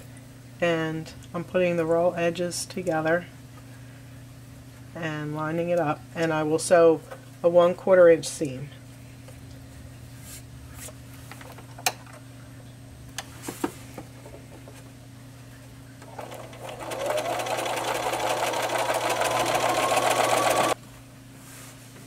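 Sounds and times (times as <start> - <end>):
sewing machine whining: 16.0 - 20.8.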